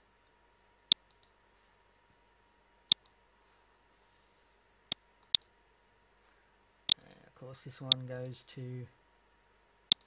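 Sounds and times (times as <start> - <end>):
faint background hum: 0.0 - 10.0
computer mouse clicks: 0.9 - 1.4, 2.9 - 3.2, 4.9 - 5.5.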